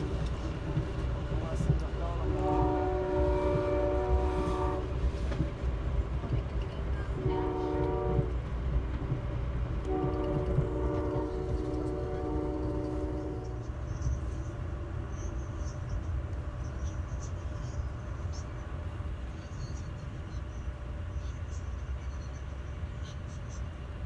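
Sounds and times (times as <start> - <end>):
moving train rumble: 0.0 - 24.0
train horn: 2.1 - 5.0, 7.1 - 8.4, 9.8 - 13.7.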